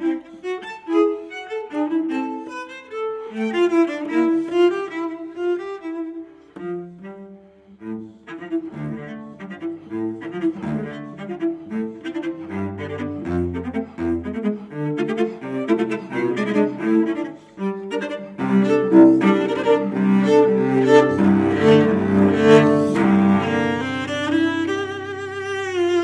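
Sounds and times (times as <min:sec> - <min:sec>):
solo cello playing short notes: 0:05.8 - 0:26.0.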